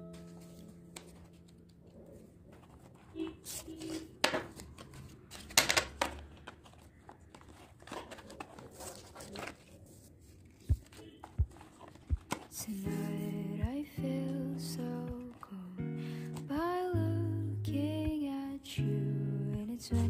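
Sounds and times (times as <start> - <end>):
paper and plastic rustling: 0.1 - 13.4.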